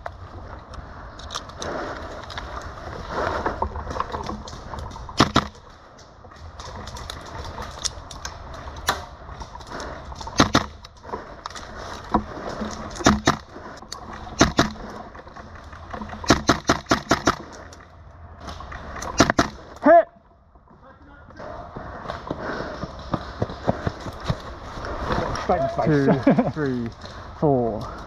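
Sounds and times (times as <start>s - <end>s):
steady low rumble: 0.0s - 28.0s
airsoft gun shots: 5.2s - 5.6s, 10.4s - 10.8s, 13.0s - 13.4s, 14.4s - 14.8s, 16.3s - 17.5s, 19.2s - 19.6s.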